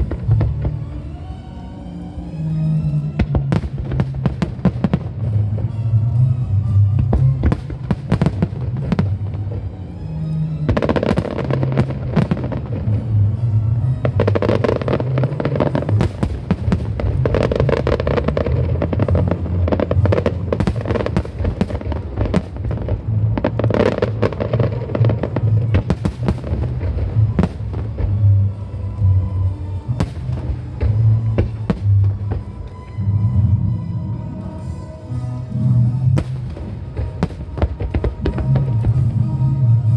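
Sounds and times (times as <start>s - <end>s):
fireworks bursting and crackling: 0.0s - 1.4s, 2.2s - 39.9s.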